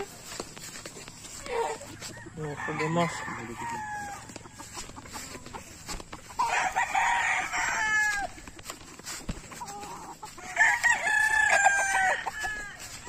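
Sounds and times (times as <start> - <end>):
roosters crowing: 0.0 - 13.0.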